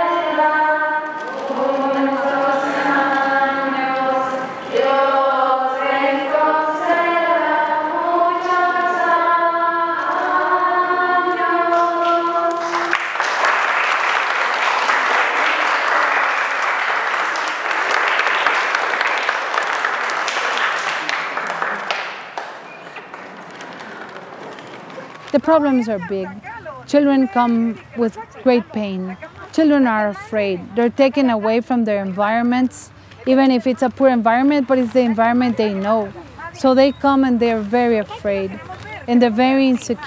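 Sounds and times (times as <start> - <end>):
choir singing a chant: 0.0 - 12.9
people clapping: 1.0 - 5.1, 11.3 - 31.4, 34.3 - 36.8, 37.5 - 40.0.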